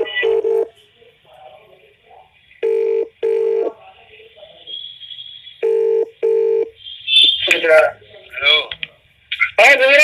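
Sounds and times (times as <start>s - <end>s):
telephone ringback tone: 0.0s - 0.7s, 2.6s - 3.7s, 5.6s - 6.7s.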